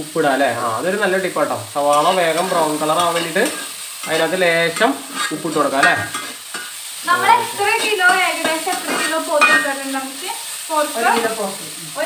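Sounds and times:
onions sizzling in oil: 0.0 - 12.0
metal spatula scraping pan: 1.9 - 9.7.

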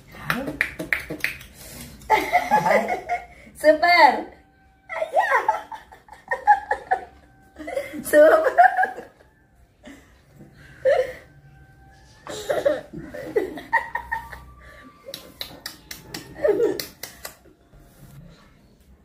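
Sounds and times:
women and toddler laughing: 2.1 - 3.3, 5.5 - 9.2, 12.3 - 14.6.

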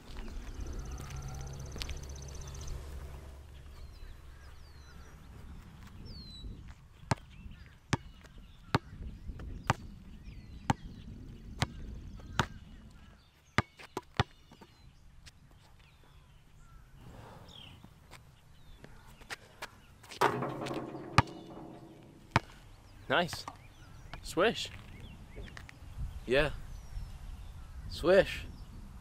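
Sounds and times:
basketball bouncing on asphalt: 7.0 - 10.0, 10.6 - 12.6, 13.6 - 14.7, 20.1 - 22.7.

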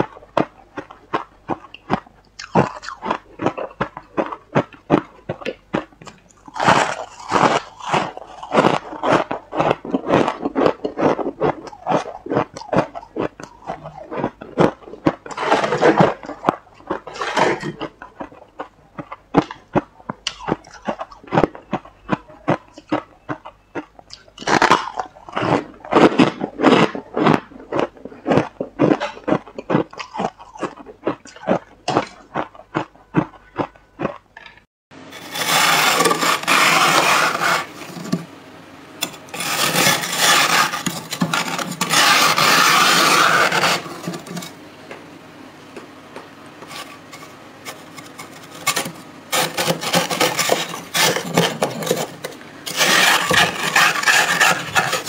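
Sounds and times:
frost being chewed: 0.0 - 38.2, 39.0 - 44.6, 46.6 - 55.0
metal spoon scraping frost: 6.5 - 18.3, 35.1 - 38.3, 39.0 - 44.6, 46.6 - 55.0.

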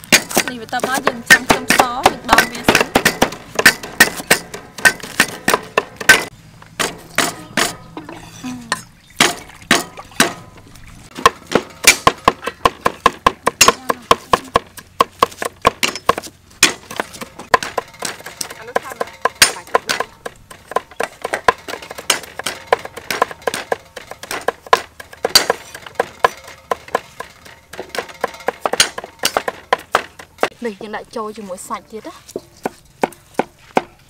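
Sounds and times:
knife chopping on wooden block: 11.1 - 30.6.

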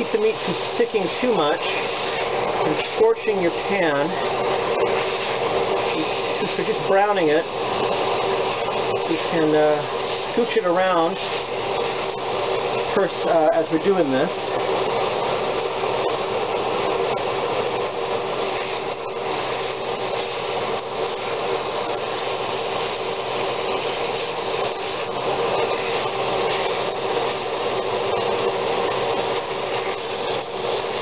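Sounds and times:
meat sizzling in oil: 0.0 - 31.0
range hood fan whooshing: 0.0 - 31.0.

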